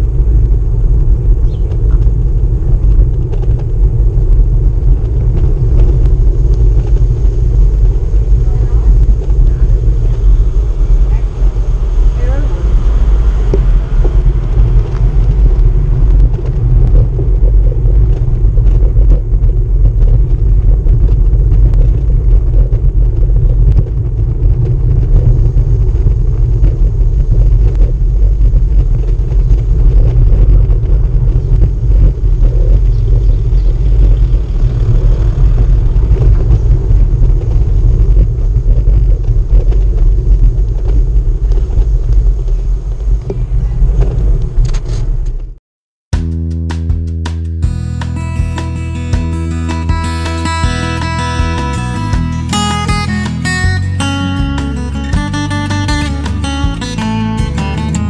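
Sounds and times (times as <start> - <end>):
bicycle rolling over cobblestones: 0.0 - 45.6.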